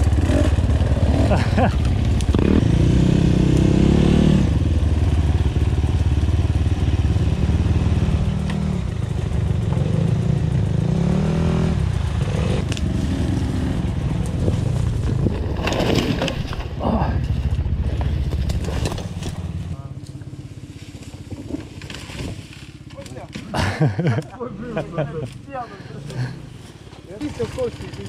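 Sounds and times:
dirt bike engine revving: 0.0 - 16.4.

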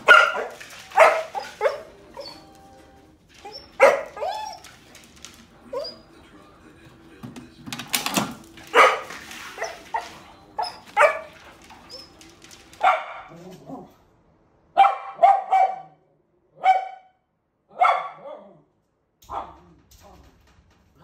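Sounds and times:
dog barking: 0.0 - 2.5, 3.4 - 4.8, 8.7 - 13.9, 14.8 - 18.6, 19.3 - 19.6.

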